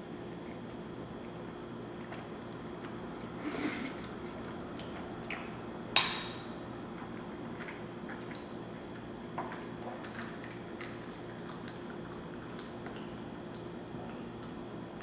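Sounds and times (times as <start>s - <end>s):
person chewing food: 0.3s - 5.7s.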